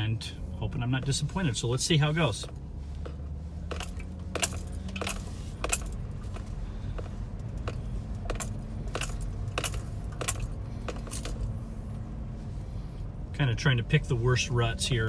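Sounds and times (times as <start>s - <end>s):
car engine and road hum: 0.0s - 15.0s
sharp clicks and jingles: 3.7s - 11.5s.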